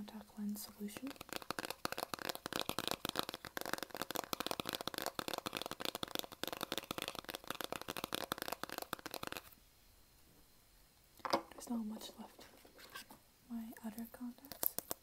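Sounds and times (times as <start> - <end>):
fingers tapping plastic bottle: 1.0 - 9.5.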